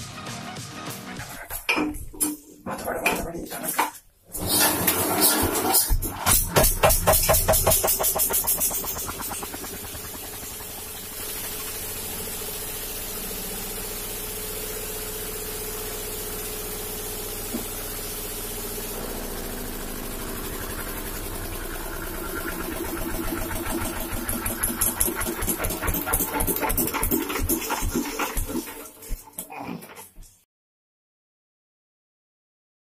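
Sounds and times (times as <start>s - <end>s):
diesel engine running: 4.4s - 29.2s
loud rhythmic pulsing: 6.3s - 14.3s, 18.9s - 29.3s.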